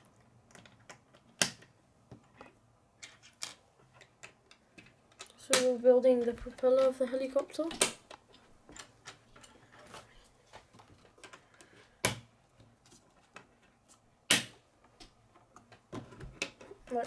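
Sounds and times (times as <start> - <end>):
plastic pieces clicking together: 3.0 - 5.7
sharp plastic snaps: 4.0 - 5.8, 7.6 - 8.2, 14.2 - 15.7.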